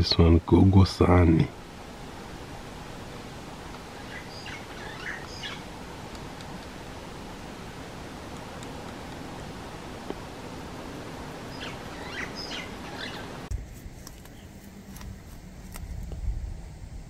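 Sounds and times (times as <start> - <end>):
steady hiss: 0.0 - 17.0
bird chirping: 3.8 - 5.7, 11.4 - 13.5
low rumble: 14.5 - 17.0.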